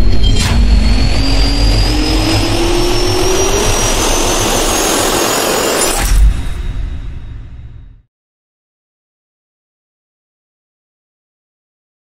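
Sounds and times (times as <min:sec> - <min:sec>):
rushing jet noise: 0:00.0 - 0:07.3
jet turbine whine rising: 0:00.0 - 0:07.8
deep rumble: 0:00.0 - 0:08.0.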